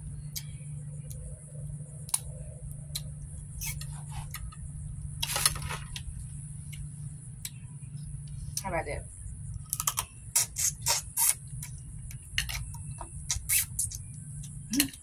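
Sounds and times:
steady low hum: 0:00.0 - 0:15.0
crab shell cracking: 0:09.7 - 0:10.1.

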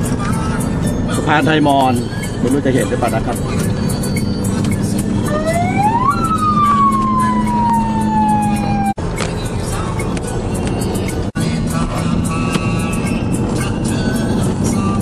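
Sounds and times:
vehicle road noise: 0:00.0 - 0:15.0
rising and falling tone: 0:04.8 - 0:09.0.

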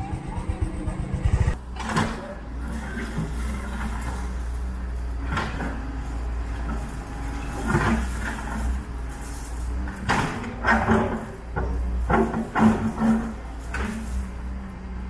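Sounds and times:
diesel engine running: 0:00.0 - 0:15.0
bucket scraping through rubble: 0:05.5 - 0:10.1.

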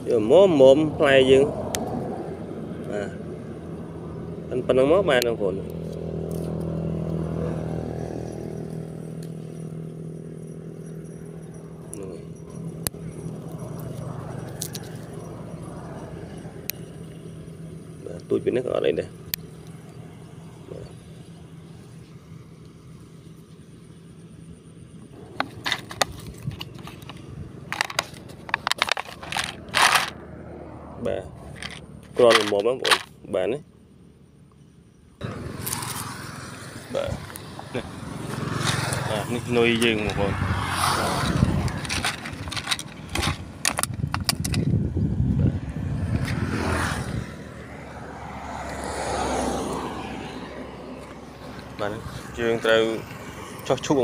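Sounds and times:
scraping: 0:25.2 - 0:30.2, 0:41.1 - 0:44.7
items clicking in plastic tray: 0:27.8 - 0:30.1, 0:41.7 - 0:44.6.

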